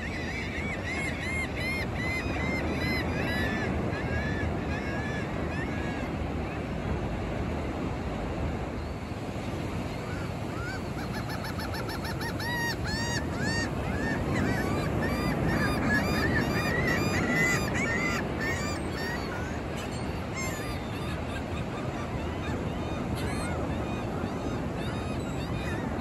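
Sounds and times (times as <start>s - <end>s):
ocean surf: 0.0s - 26.0s
gulls crying: 9.4s - 26.0s.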